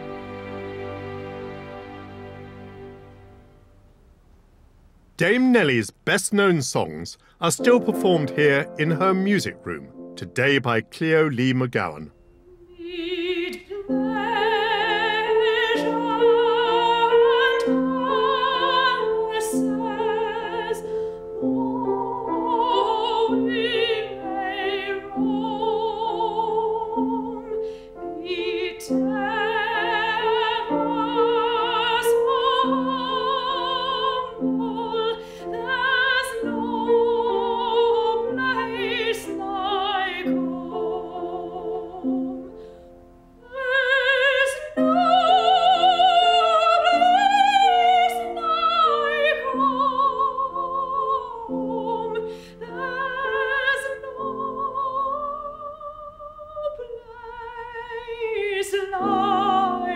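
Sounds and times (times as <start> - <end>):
piano chords: 7.4 - 55.4
soprano singing operatically: 12.5 - 42.7, 43.4 - 59.9.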